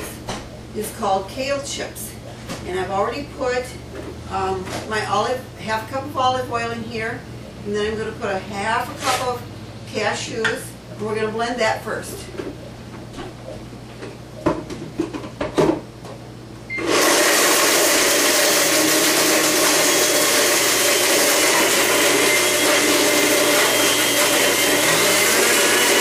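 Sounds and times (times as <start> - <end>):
blender motor running: 16.7 - 26.0.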